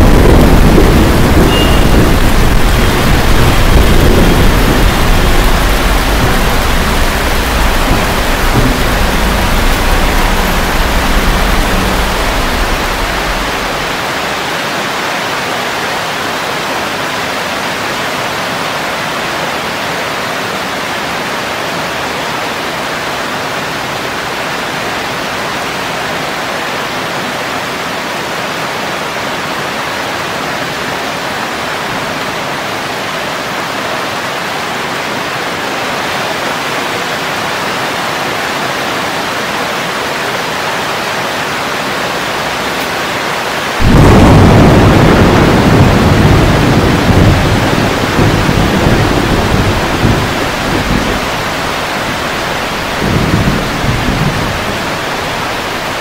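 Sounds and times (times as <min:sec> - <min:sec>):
low rumble of thunder: 0:00.0 - 0:14.2, 0:43.8 - 0:56.0
heavy rain falling: 0:00.0 - 0:56.0.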